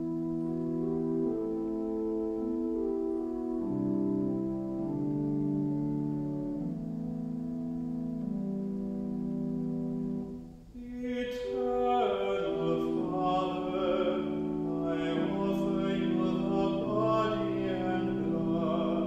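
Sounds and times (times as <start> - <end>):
keyboard accompaniment: 0.0 - 19.0
sustained keyboard chord: 0.0 - 19.0
classical solo voice singing: 10.7 - 19.0.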